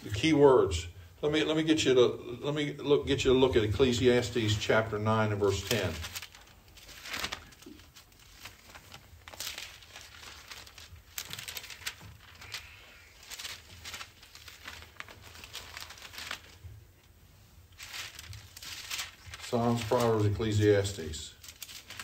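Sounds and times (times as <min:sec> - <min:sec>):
book pages turning: 0:05.5 - 0:16.7, 0:17.8 - 0:20.6, 0:21.4 - 0:22.0.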